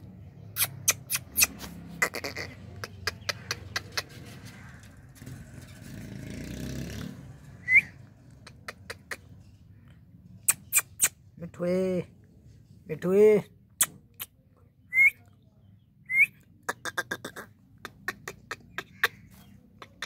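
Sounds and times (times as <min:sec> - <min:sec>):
parakeet squeak: 0:00.6 - 0:02.4, 0:10.5 - 0:11.2.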